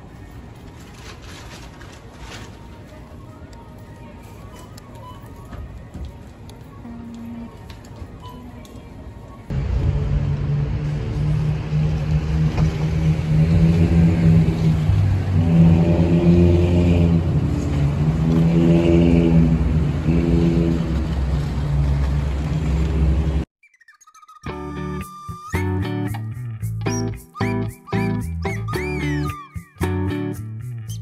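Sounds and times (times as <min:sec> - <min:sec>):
road noise inside car: 0:09.4 - 0:23.5
car engine accelerating: 0:09.5 - 0:23.4.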